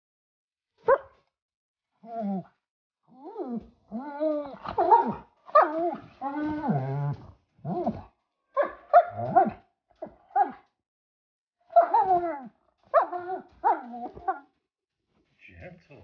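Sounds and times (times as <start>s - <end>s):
dog whining and grumbling: 2.0s - 8.2s, 11.7s - 14.5s.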